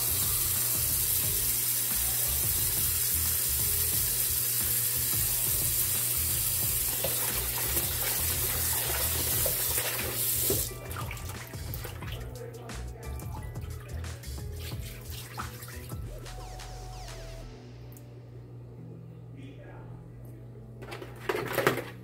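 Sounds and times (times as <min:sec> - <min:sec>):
tap water running: 0:00.0 - 0:12.4, 0:13.2 - 0:16.1, 0:20.8 - 0:22.0
hands splashing in water: 0:14.0 - 0:15.9.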